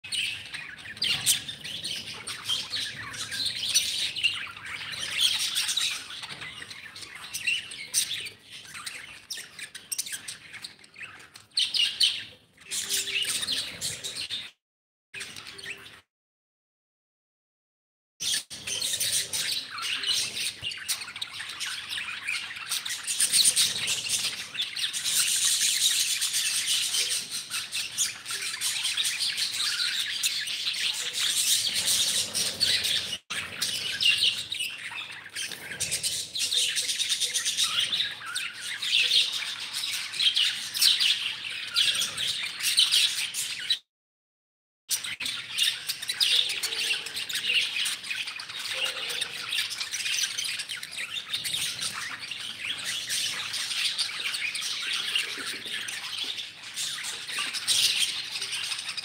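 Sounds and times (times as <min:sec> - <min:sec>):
budgerigars chattering: 0:18.2 - 0:43.8.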